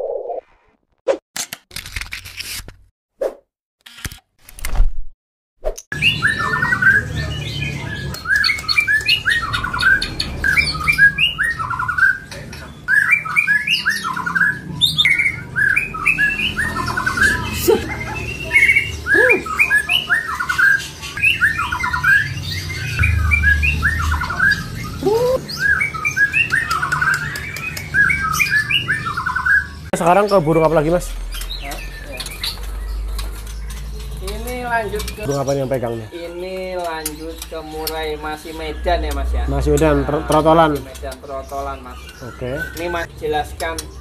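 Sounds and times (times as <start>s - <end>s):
songbirds chirping: 6.0s - 44.0s
low hum: 22.8s - 25.4s
low rising whistles: 22.8s - 25.8s.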